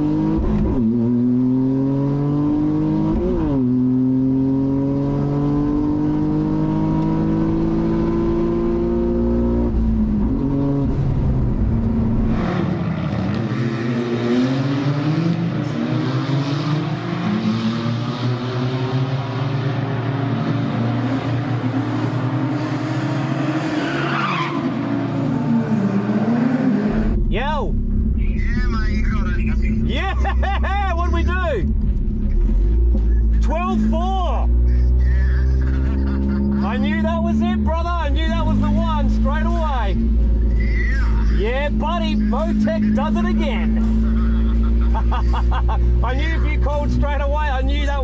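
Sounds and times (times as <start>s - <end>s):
car engine at full throttle: 0.0s - 48.0s
tyres on track: 0.0s - 48.0s.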